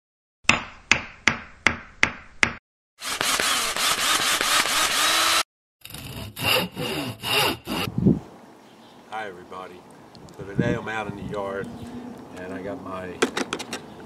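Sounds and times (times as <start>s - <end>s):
hand saw on wood: 3.0s - 7.9s
power tool running: 3.0s - 7.9s.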